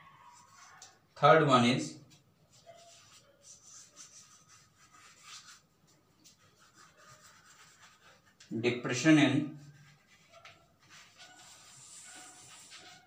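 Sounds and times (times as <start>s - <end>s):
chalk writing on blackboard: 2.5s - 8.5s, 9.6s - 13.0s.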